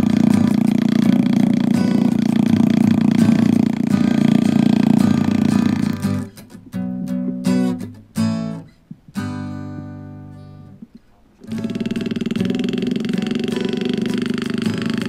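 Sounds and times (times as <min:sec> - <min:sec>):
pneumatic graver buzzing on metal: 0:00.0 - 0:06.1
acoustic guitar music: 0:00.0 - 0:15.0.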